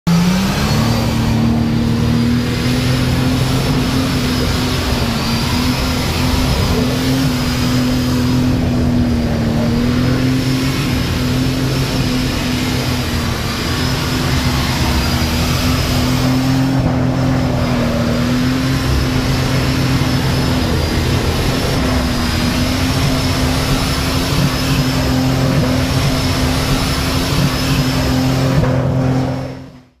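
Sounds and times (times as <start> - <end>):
loud engine revving steadily: 0.0 - 30.0.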